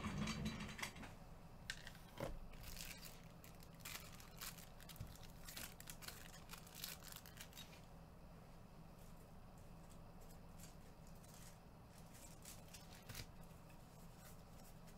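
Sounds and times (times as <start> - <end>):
plastic packaging tearing and crinkling: 1.8 - 7.8, 10.2 - 14.9.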